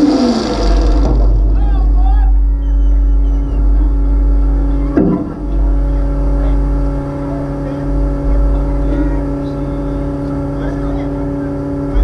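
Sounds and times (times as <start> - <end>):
car engine idling: 0.0 - 12.0
sharp thump: 5.0 - 5.6.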